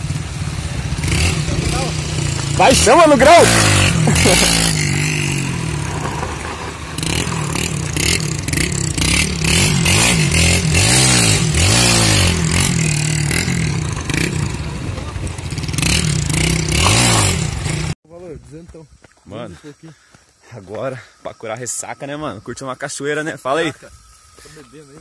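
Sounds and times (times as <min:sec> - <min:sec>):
loud rough rushing noise: 0:00.0 - 0:18.0
motorcycle engine revving: 0:00.0 - 0:18.0.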